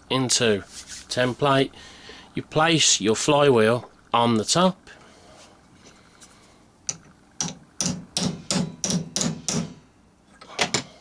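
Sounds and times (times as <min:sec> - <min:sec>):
small hammer tapping metal: 0:06.9 - 0:09.8.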